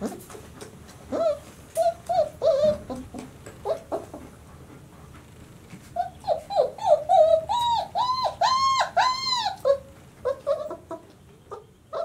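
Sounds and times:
puppy whining: 1.0s - 4.4s, 5.8s - 12.0s
puppy whimpering: 1.1s - 4.3s, 5.9s - 12.0s.

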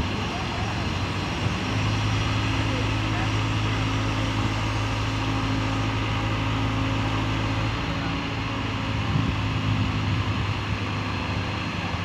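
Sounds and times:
diesel engine humming: 0.0s - 12.0s.

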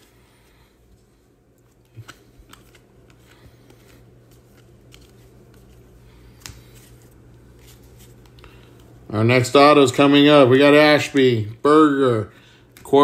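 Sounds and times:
low steady hum: 0.0s - 13.0s
trading cards clicking and rustling: 0.9s - 9.0s.

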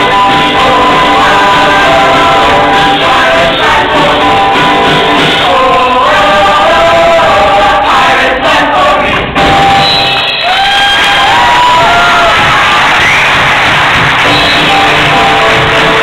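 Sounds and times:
chorus singing: 0.0s - 10.6s, 14.2s - 16.0s.

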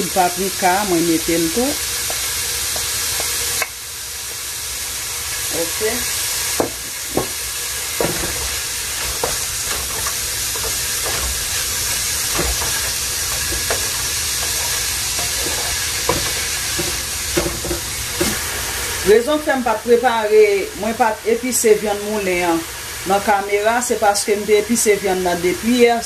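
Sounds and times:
vegetables sizzling in oil: 0.0s - 26.0s
wooden spoon scraping pan: 6.6s - 18.7s.

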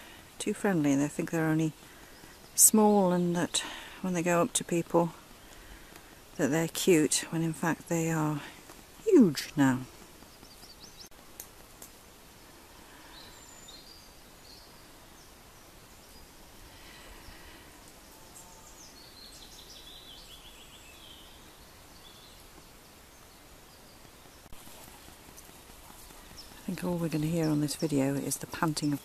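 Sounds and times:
breeze in pine trees: 0.0s - 29.0s
birds singing: 9.2s - 11.1s, 12.3s - 29.0s.

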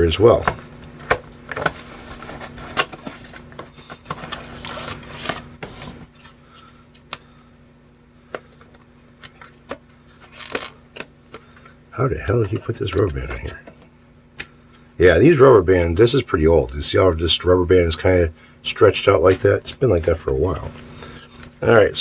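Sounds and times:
steady low hum: 0.0s - 22.0s
cardboard rustling and scraping: 1.5s - 6.4s.

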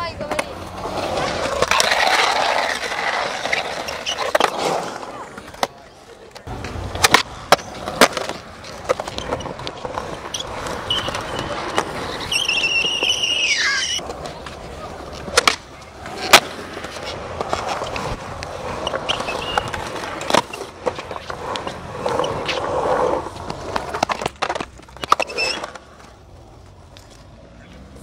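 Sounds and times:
skateboard clacking: 0.0s - 28.0s
skateboard wheels rolling: 0.0s - 28.0s
high squeal falling in pitch: 12.2s - 14.0s.

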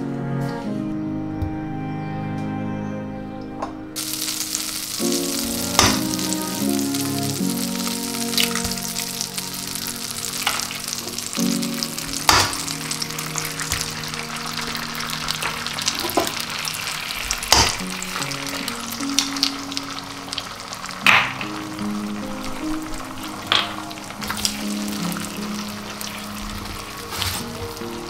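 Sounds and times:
soft background music: 0.0s - 28.0s
eggs sizzling in frying pan: 4.0s - 28.0s
eggs cracking taps: 17.5s - 17.9s.

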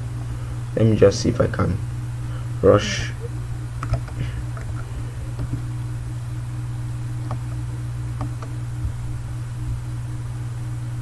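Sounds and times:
steady low hum: 0.0s - 11.0s
computer keys clicking: 3.8s - 5.6s, 8.2s - 8.5s.

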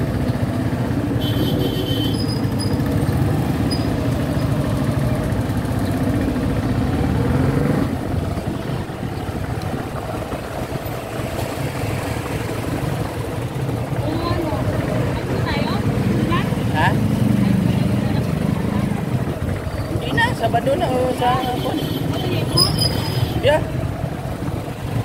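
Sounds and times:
motorcycle engine running: 0.0s - 25.0s.

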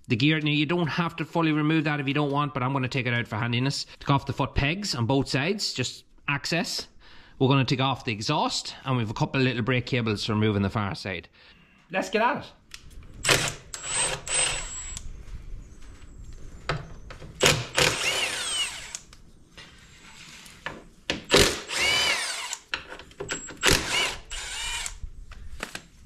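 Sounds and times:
cordless impact wrench running: 13.2s - 15.0s, 17.4s - 19.1s, 21.3s - 22.7s, 23.3s - 25.0s.

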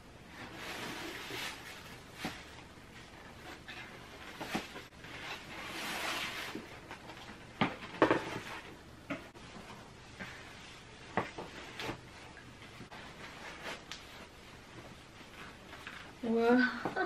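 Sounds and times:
plastic wrapping rustling: 0.3s - 8.8s.

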